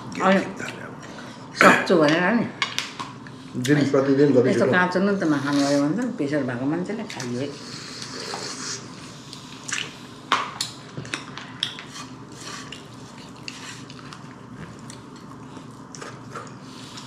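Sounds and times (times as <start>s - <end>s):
person chewing: 7.8s - 17.0s.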